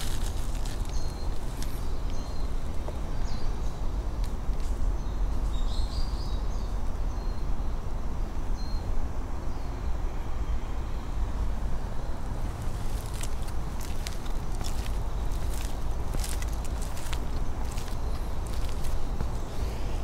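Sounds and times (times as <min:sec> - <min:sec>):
low outdoor rumble: 0:09.0 - 0:20.0.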